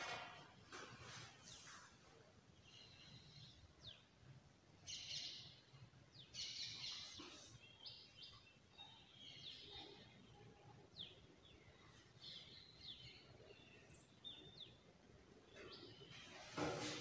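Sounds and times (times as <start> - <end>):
faint bird chirps: 4.9 - 16.4.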